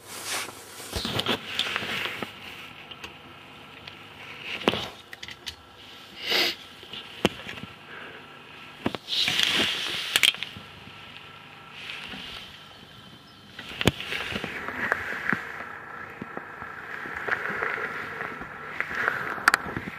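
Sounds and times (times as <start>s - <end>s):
clicks and knocks of handling: 3.8s - 5.6s.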